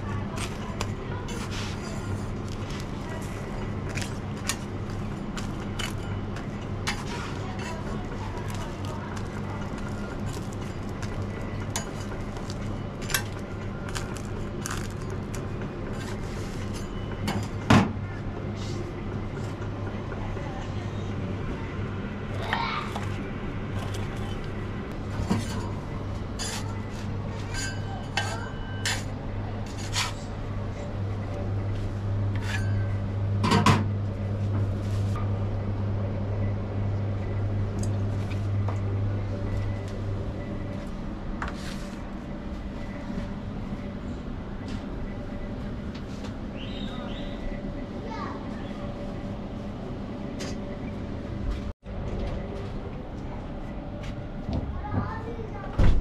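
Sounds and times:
steady low hum: 0:00.0 - 0:56.0
metal spatula scraping griddle: 0:26.4 - 0:30.2.

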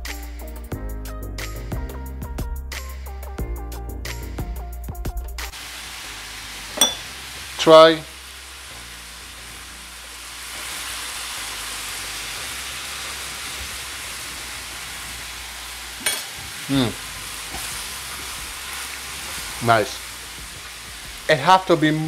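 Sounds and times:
food sizzling in a frying pan: 0:05.4 - 0:22.0
person humming: 0:16.7 - 0:17.0.

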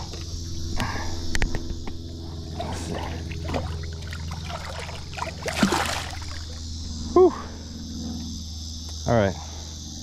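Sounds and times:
low hum: 0:00.0 - 0:08.9
water splashing: 0:02.6 - 0:06.6.

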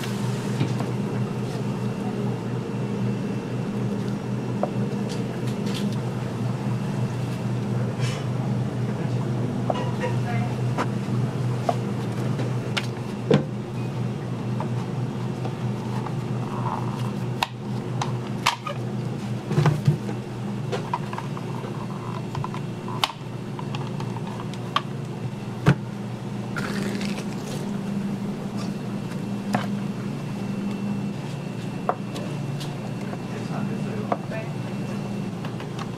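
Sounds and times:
steady low hum: 0:00.0 - 0:35.9.

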